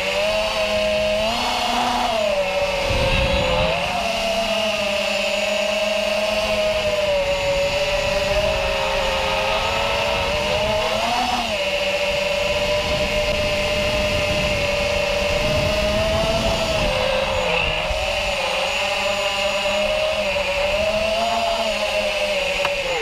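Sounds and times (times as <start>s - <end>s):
quadcopter motors buzzing whine: 0.0s - 23.0s.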